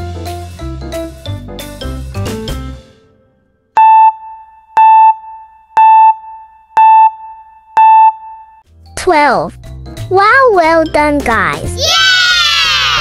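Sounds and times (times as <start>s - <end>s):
short timer beeps: 3.8s - 8.6s.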